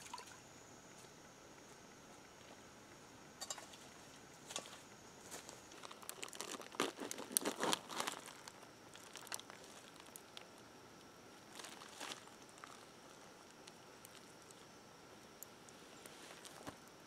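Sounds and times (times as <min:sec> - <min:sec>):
plastic package crinkling: 0:05.7 - 0:10.6, 0:11.4 - 0:14.6.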